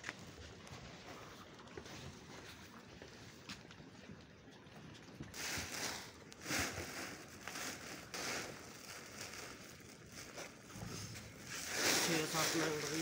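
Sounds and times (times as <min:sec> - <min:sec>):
plastic sack crinkling: 0:06.4 - 0:13.0.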